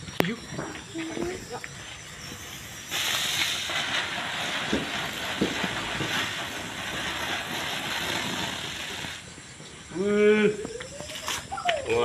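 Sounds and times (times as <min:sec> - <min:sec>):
firework hissing: 0:00.0 - 0:11.6.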